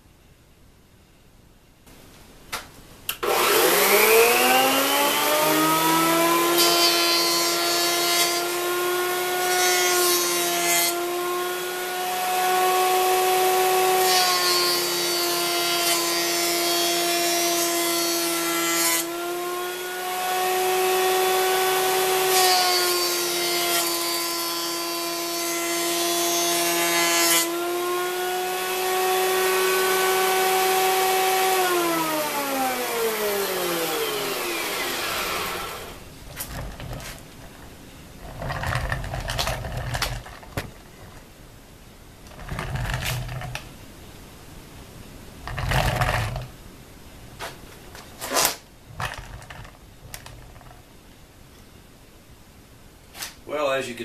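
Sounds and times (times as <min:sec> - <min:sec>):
jointer motor whine: 0:03.2 - 0:06.8, 0:27.9 - 0:37.0
board planing hiss: 0:32.7 - 0:41.3.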